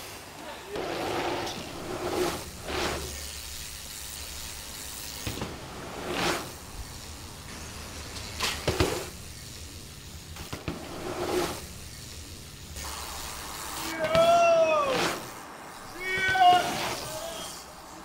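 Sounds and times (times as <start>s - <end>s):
bike tyres whooshing over dirt: 0.0s - 18.0s.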